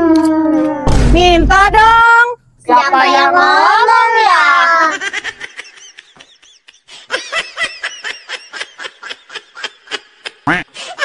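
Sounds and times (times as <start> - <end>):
high-pitched laughter: 4.7 - 11.0.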